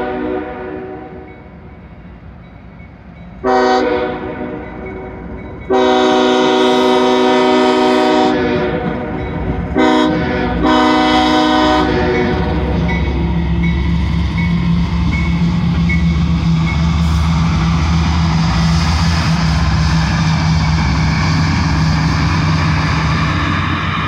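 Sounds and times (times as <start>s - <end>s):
locomotive air horn blasts: 0.0s - 1.2s, 3.4s - 4.6s, 5.7s - 8.9s, 9.8s - 12.8s
diesel engines rumbling: 1.5s - 24.0s.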